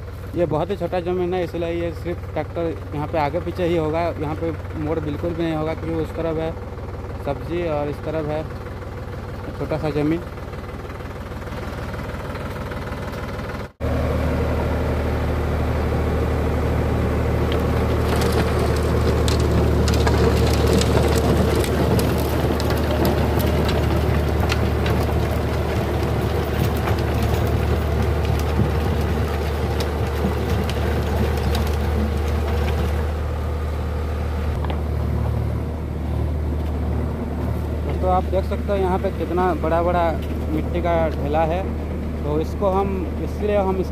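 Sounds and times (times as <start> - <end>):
tractor diesel engine running: 0.0 - 43.9
blades crackling through soil clods: 17.3 - 33.4.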